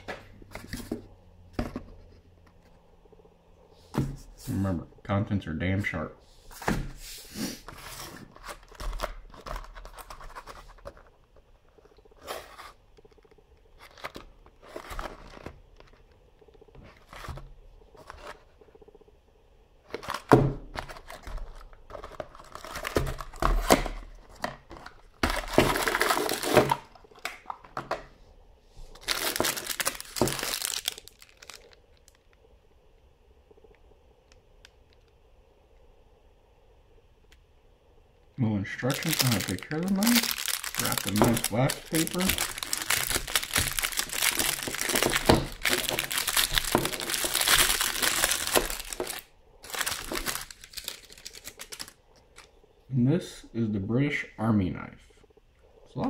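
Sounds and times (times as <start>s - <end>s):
wax paper crinkling: 28.8s - 32.3s, 38.7s - 52.5s.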